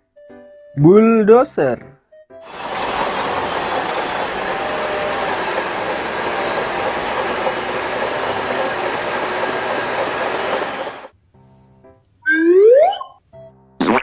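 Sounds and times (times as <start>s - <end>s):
bulldozer diesel engine running: 2.4s - 11.1s
steel tracks clattering: 2.5s - 11.1s.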